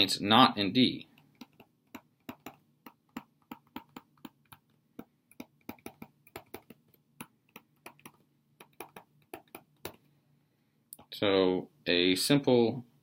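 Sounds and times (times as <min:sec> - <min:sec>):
stylus clicking on tablet screen: 0:01.1 - 0:10.1.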